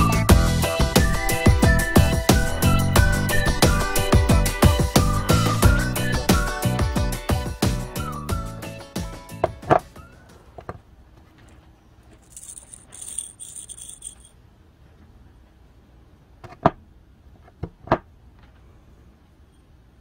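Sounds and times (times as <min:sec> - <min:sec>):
metallic rattle of bearing: 0:12.2 - 0:14.4
steel parts clinking: 0:12.2 - 0:14.4.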